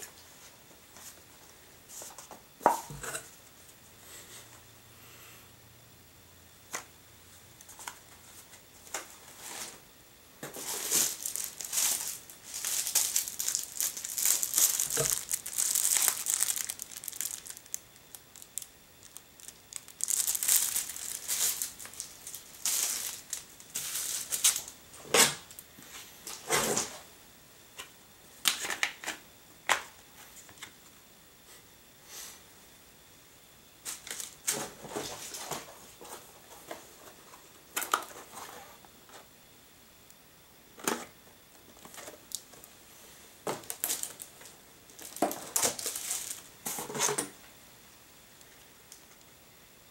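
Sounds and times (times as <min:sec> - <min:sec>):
plastic packaging crinkling: 0:10.5 - 0:24.8, 0:33.9 - 0:35.6, 0:41.8 - 0:42.8, 0:43.5 - 0:47.3.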